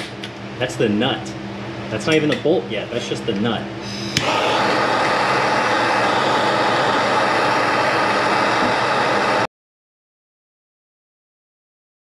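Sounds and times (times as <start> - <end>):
gas torch flame rushing: 3.9 - 9.5.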